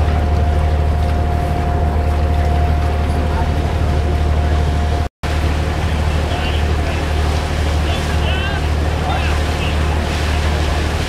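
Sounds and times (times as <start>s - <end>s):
ship engine drone: 0.0s - 11.0s.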